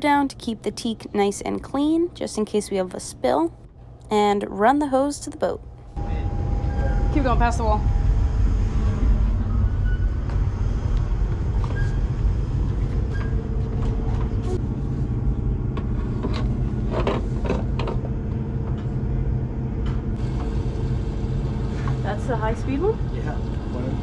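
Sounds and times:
low machine rumble: 5.6s - 24.0s.

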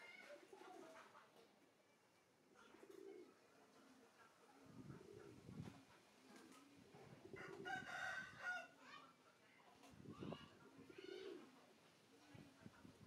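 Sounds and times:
pigeons cooing: 2.5s - 3.5s, 4.8s - 8.0s, 10.5s - 11.6s
rooster crowing: 7.4s - 8.7s.

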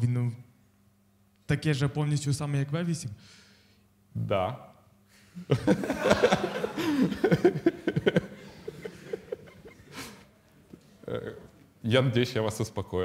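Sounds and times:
laughter: 5.4s - 10.2s.

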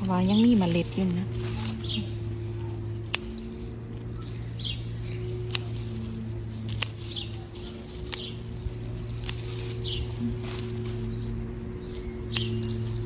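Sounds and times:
birds chirping: 0.0s - 13.0s
scissors snipping stems: 0.0s - 13.0s
steady low hum: 0.0s - 13.0s.

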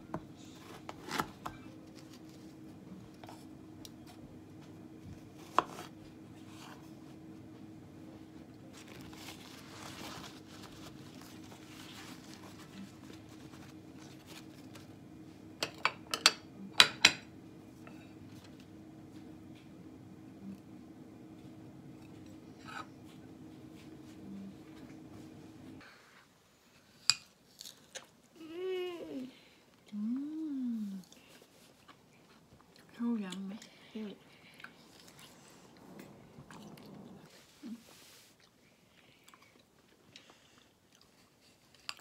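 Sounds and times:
faint steady hum: 0.0s - 42.0s
paper towel rustling: 8.7s - 14.9s.

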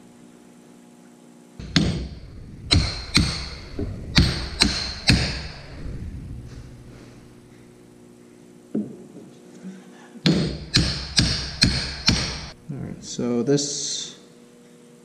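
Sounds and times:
hammer strikes on metal: 1.6s - 5.8s, 10.2s - 12.6s.

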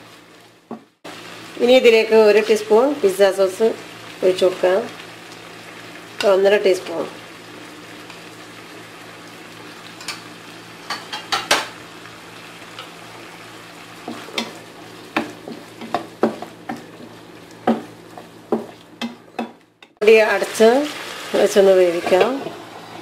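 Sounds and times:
chicken sizzling in a frying pan: 0.0s - 19.3s, 20.0s - 23.0s
utensils knocking against pan: 10.9s - 11.7s, 18.5s - 20.0s.

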